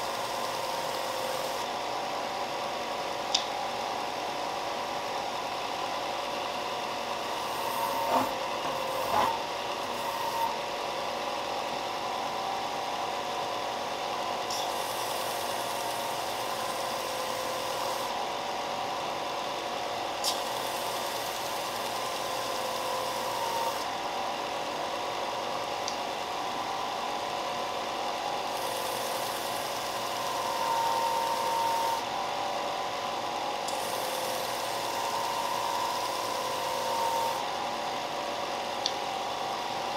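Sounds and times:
belt sander running: 7.0 - 12.5.

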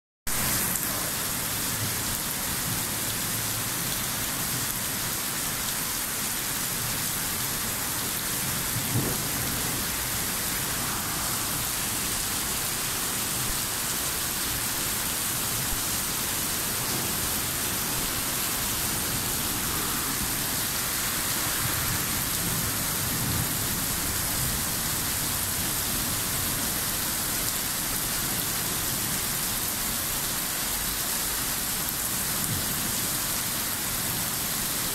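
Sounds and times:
heavy rain pouring: 0.3 - 34.9
low rumbles of thunder: 8.6 - 11.8.

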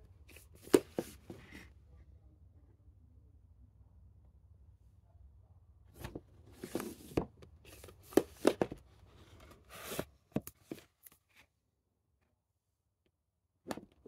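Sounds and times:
rustling scrapes: 6.5 - 10.1
plastic cases clicking and knocking: 8.0 - 8.8.

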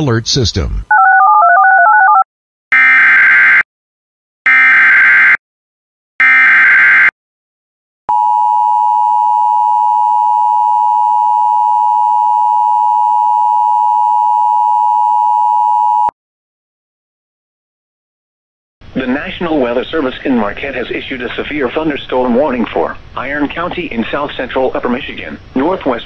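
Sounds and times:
two-tone alarm: 2.1 - 3.7, 4.5 - 5.4, 6.2 - 7.1, 8.1 - 16.1.

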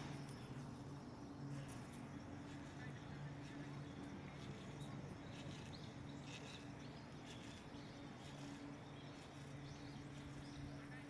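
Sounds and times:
faint bird chirps: 0.0 - 11.0
steady low hum: 0.0 - 11.0.

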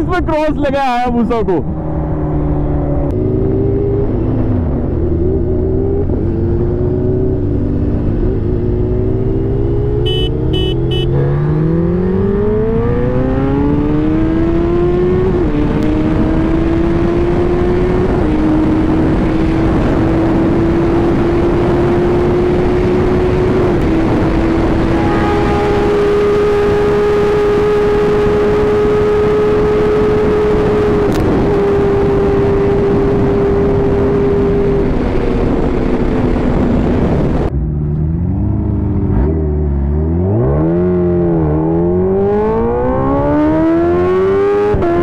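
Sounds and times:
motorcycle engine accelerating: 1.6 - 45.0
wind rush: 11.7 - 37.8.

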